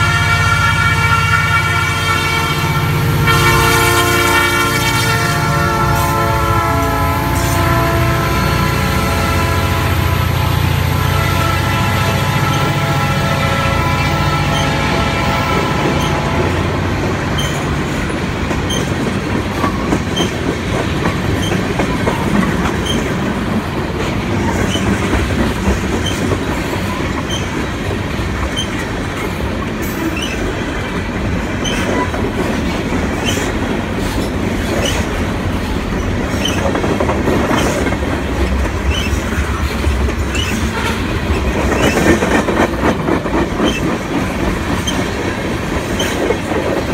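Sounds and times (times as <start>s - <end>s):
freight train rumble: 0.0s - 46.9s
locomotive drone: 0.0s - 46.9s
train wheels clicking over rail joints: 14.4s - 46.9s.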